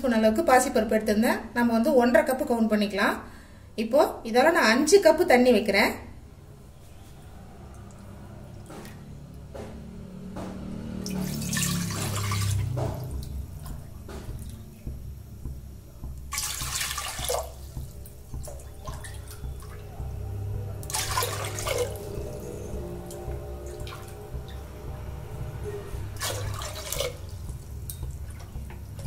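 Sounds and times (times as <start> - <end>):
water poured into metal pot: 11.0 - 13.8, 16.3 - 19.7, 20.8 - 22.2, 26.1 - 29.0.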